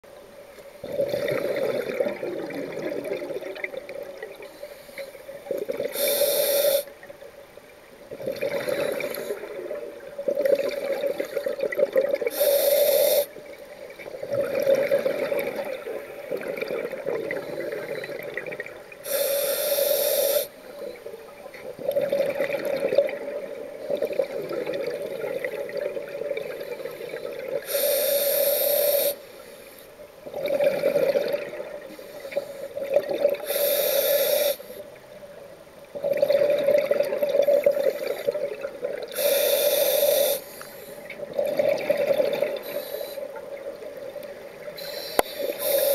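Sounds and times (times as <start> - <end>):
exhaled bubbles gurgling: 0.8 - 4.6, 5.4 - 6.2, 8.1 - 19.1, 21.2 - 27.7, 30.2 - 33.6, 35.9 - 40.4, 41.0 - 45.9
regulator inhale hiss: 4.4 - 7.0, 8.7 - 9.6, 12.3 - 13.4, 19.0 - 21.2, 26.6 - 30.0, 31.9 - 35.0, 37.6 - 38.4, 39.1 - 41.2, 42.6 - 43.4, 44.6 - 45.9.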